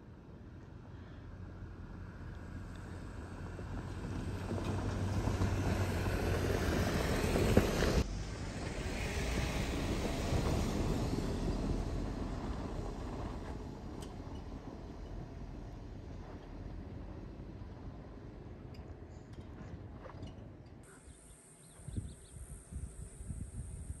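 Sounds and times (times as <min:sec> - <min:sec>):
vehicle passing on gravel: 0:02.4 - 0:18.7.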